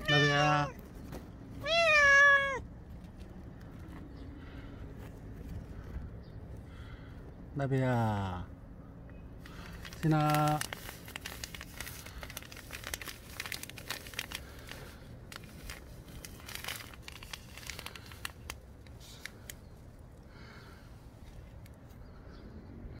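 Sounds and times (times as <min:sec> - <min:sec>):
cat rustling through dry leaves: 0:00.0 - 0:03.2, 0:09.5 - 0:20.2.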